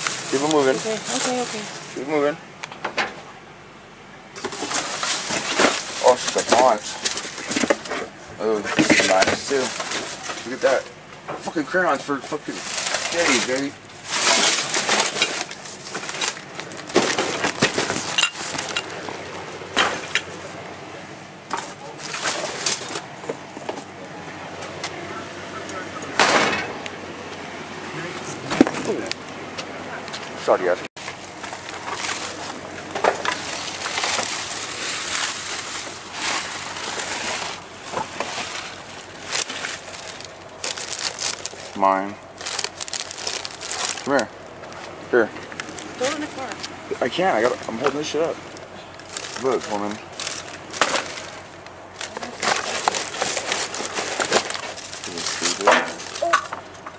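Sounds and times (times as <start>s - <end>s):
packaging rustling and crinkling: 0.0s - 2.0s, 4.4s - 8.0s, 8.8s - 10.9s, 12.3s - 19.4s, 21.6s - 23.1s, 31.0s - 46.7s, 48.2s - 56.5s
trash knocking and clattering: 4.4s - 11.7s, 12.6s - 20.4s, 26.1s - 26.8s, 31.0s - 41.8s, 47.4s - 56.9s.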